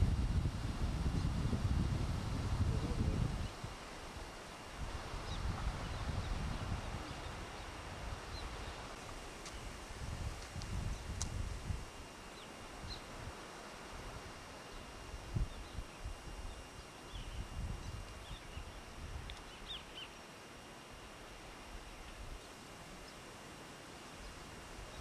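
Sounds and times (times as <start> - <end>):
low rumbling on microphone: 0.0 - 3.8, 4.8 - 9.0.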